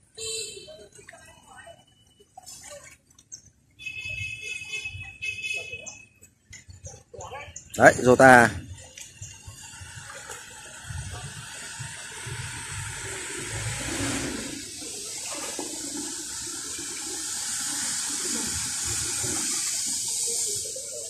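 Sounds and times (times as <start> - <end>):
people wading through water: 0.4 - 21.0.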